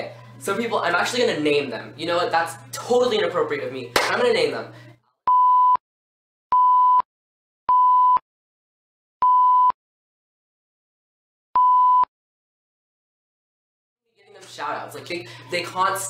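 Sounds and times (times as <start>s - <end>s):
censor bleep tone: 5.3s - 5.8s, 6.5s - 7.1s, 7.7s - 8.2s, 9.2s - 9.8s, 11.6s - 12.1s.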